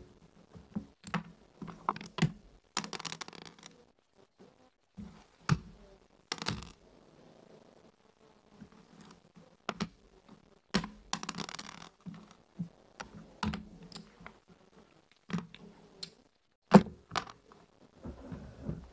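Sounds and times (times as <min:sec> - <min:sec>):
checkers clacking on wooden board: 0:01.0 - 0:03.8, 0:06.3 - 0:06.8, 0:10.7 - 0:12.4, 0:15.2 - 0:17.4.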